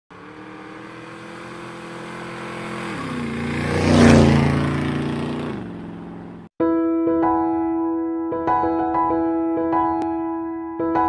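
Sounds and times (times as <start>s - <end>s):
motorcycle engine passing by: 0.1s - 6.5s.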